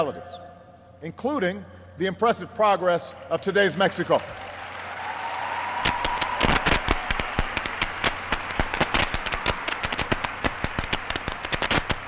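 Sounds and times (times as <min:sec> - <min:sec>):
audience applauding: 0:03.8 - 0:12.0
individual hand claps: 0:04.3 - 0:12.0.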